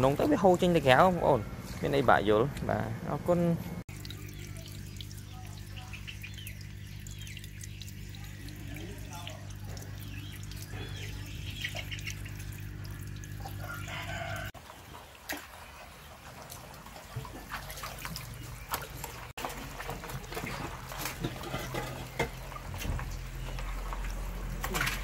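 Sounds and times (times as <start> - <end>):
steady low hum: 0.0 - 14.5
water trickling and splashing: 3.8 - 25.0
rooster crowing: 13.4 - 14.6.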